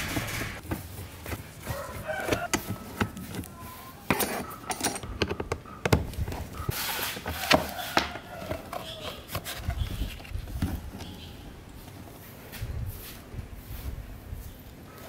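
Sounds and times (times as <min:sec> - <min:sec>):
screwdriver scraping and clicking: 0:02.2 - 0:05.8.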